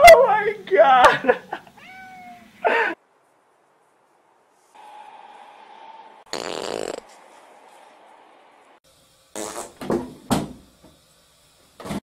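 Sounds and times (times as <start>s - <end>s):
farts: 6.3s - 7.1s, 9.3s - 10.0s.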